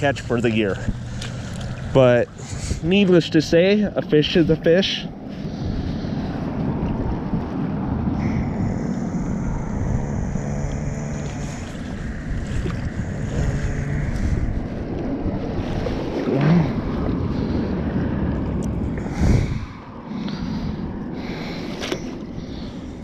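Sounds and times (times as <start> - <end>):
small waves lapping shore: 0.0 - 4.5
wind buffeting microphone: 0.0 - 23.0.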